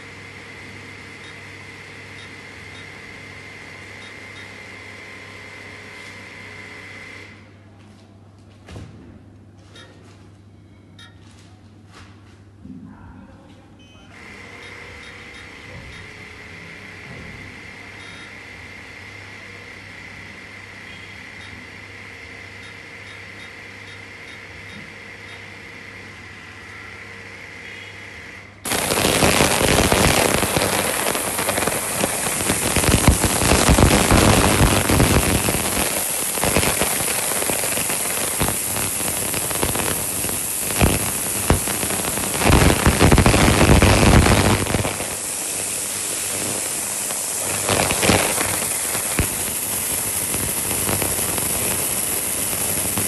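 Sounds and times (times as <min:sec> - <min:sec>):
low hum with faint whine: 0:07.4 - 0:53.0
cavitation hiss with crackles: 0:28.7 - 0:53.0.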